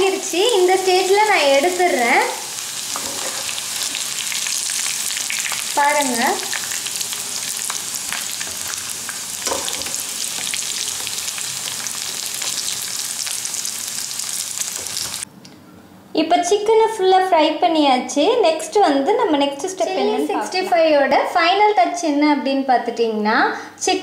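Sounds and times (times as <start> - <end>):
skimmer stirring through pan: 0.0 - 15.2
chicken sizzling in hot oil: 0.0 - 15.3.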